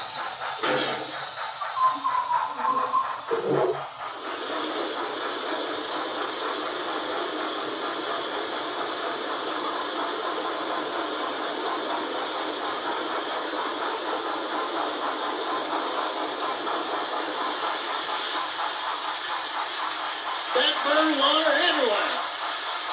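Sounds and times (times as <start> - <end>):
steam hiss: 0.0 - 22.9.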